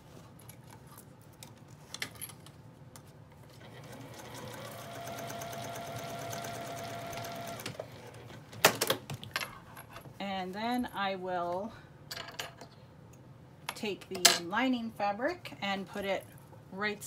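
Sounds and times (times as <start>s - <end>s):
sewing machine stitching: 3.6s - 8.2s.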